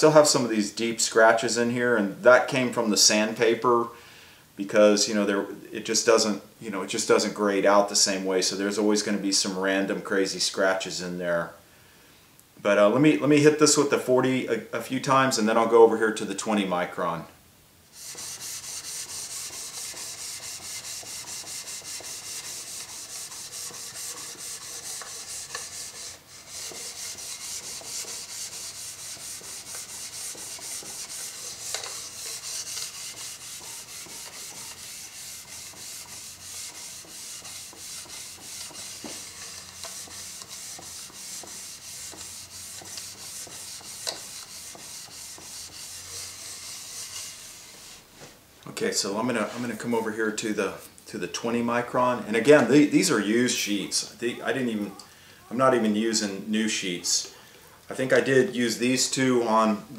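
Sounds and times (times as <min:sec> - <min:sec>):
knife rubbing on abrasive film: 0:17.9 - 0:48.1.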